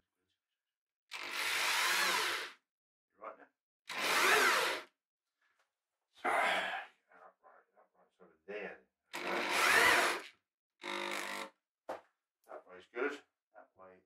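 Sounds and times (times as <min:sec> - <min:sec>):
power drill boring into wood: 0:01.1 - 0:02.6, 0:03.9 - 0:04.9, 0:09.1 - 0:11.5.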